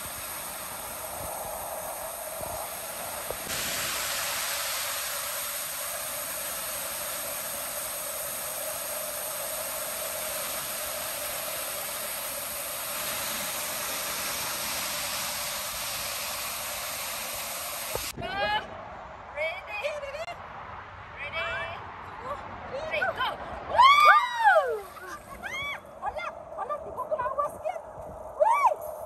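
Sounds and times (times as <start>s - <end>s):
waterfall rushing into pool: 0.0s - 18.2s.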